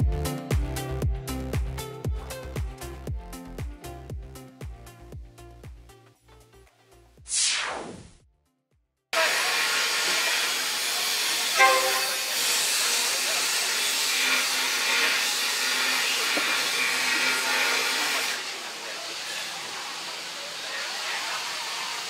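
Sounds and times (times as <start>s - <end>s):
outdoor market hiss: 9.2s - 22.0s
train horn toot: 11.6s - 13.0s.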